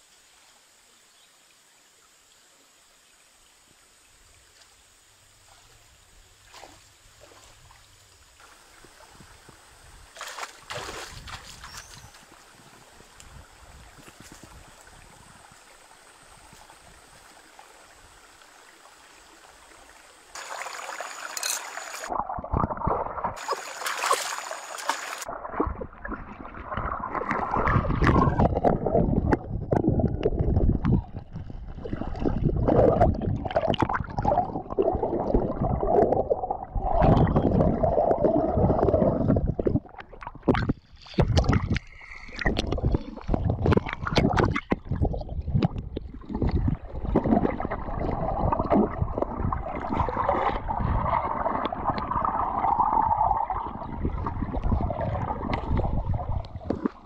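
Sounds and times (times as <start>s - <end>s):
faint stream hiss: 0.0s - 22.2s, 23.3s - 25.3s
water splashing and gurgling: 5.4s - 57.0s.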